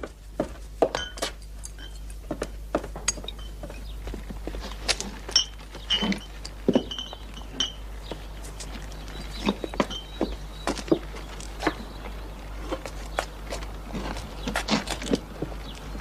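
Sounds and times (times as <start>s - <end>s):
small hard objects clinking: 3.0s - 10.2s.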